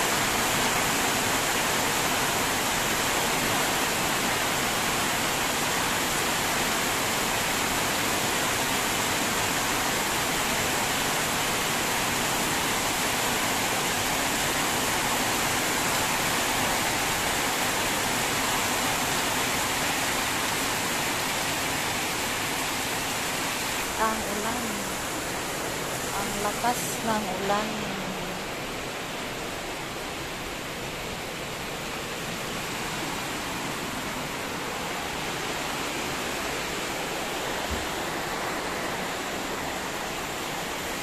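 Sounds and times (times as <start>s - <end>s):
heavy rain pouring: 0.0s - 41.0s.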